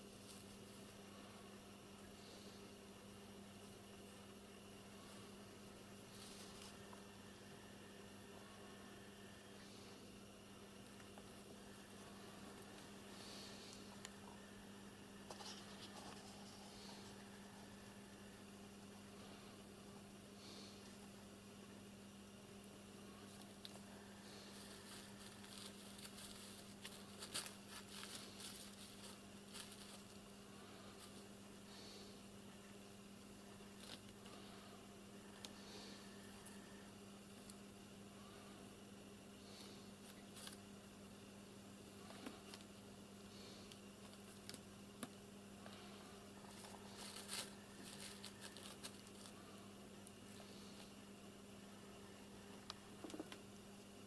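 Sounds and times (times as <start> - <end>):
steady low hum: 0.0 - 54.0
kitten paws scratching newspaper: 23.4 - 31.3, 46.4 - 49.4.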